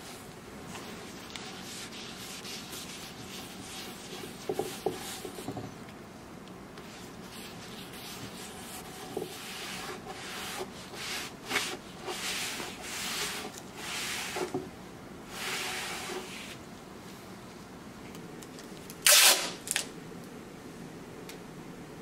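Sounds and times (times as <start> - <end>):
rag rubbing on wood: 1.1 - 5.7, 6.8 - 14.6.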